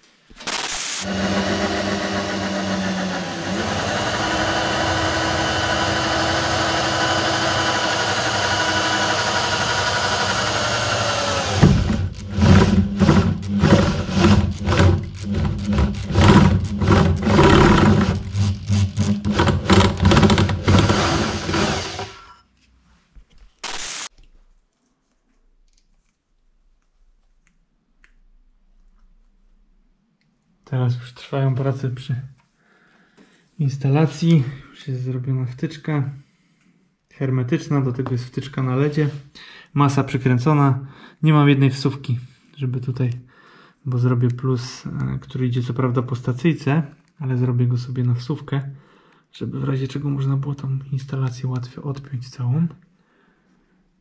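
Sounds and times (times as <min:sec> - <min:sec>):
electric drill boring through metal: 0:00.5 - 0:22.3, 0:23.6 - 0:24.1.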